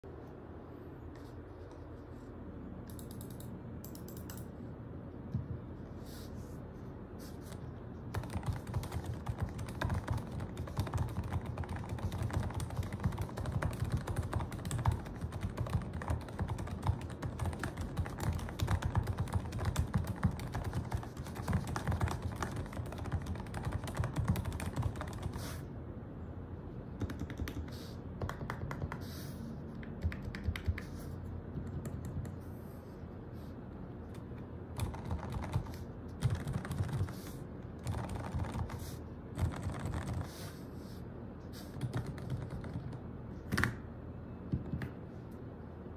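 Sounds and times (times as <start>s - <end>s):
mechanical keyboard typing: 2.9s - 4.5s, 8.1s - 25.4s, 27.0s - 29.0s, 29.9s - 30.8s, 34.8s - 37.2s, 37.8s - 38.8s, 39.4s - 40.3s, 41.8s - 43.7s.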